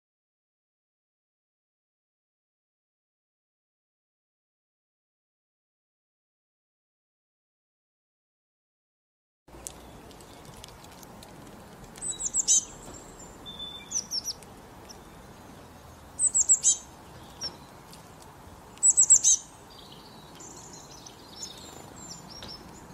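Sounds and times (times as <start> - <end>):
faint outdoor background hiss: 9.5 - 22.9
songbird chirping: 9.5 - 22.9.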